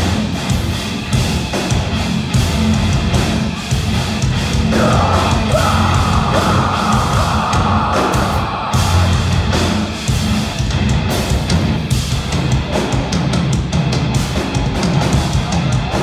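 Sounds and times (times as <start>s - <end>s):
metalcore band playing live: 0.0s - 16.0s.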